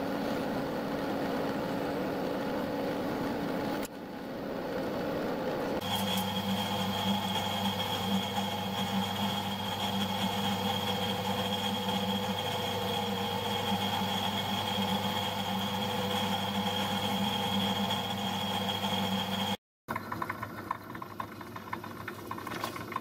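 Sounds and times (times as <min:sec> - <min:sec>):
lathe machine hum: 0:05.7 - 0:19.6.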